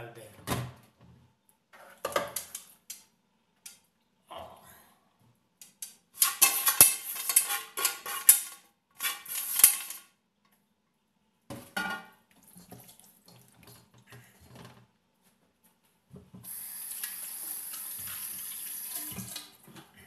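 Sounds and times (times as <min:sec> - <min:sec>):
spoon scraping and knocking a pot: 0:06.2 - 0:10.0.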